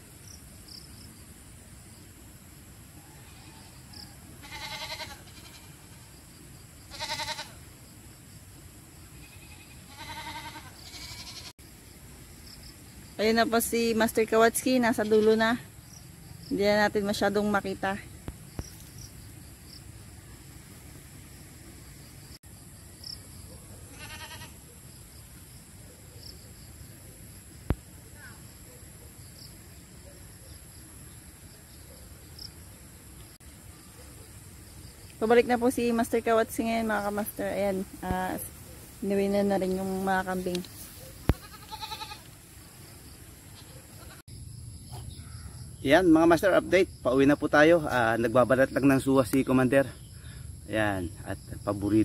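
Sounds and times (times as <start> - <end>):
insects chirring: 0.0 - 52.0
goats bleating: 4.4 - 6.0, 6.9 - 7.6, 9.3 - 11.5, 23.9 - 24.6, 41.3 - 42.3, 43.6 - 44.2.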